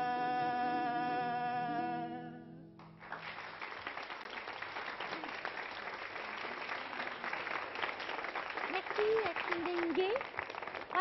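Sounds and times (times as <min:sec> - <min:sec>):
studio audience applause: 0:02.8 - 0:11.0.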